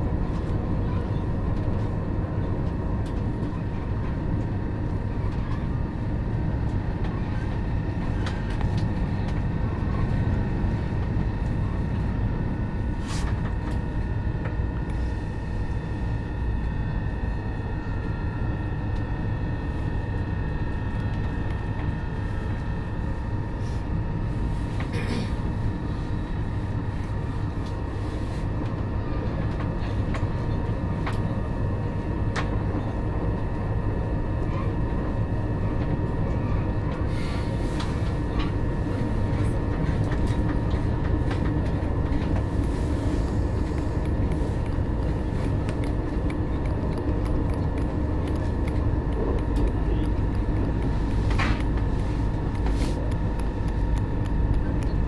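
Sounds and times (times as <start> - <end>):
wheels rumbling on rail: 0.0 - 55.0.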